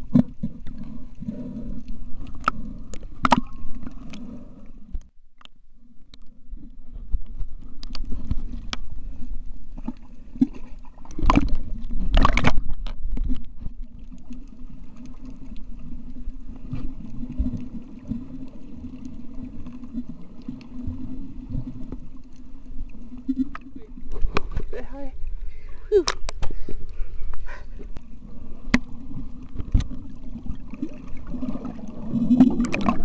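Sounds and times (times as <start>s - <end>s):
muffled underwater water noise: 0.0s - 33.0s.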